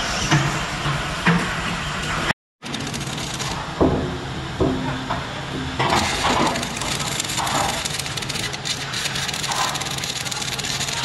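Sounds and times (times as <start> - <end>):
workshop noise: 0.0 - 11.0
metal scraping and creaking: 2.7 - 11.0.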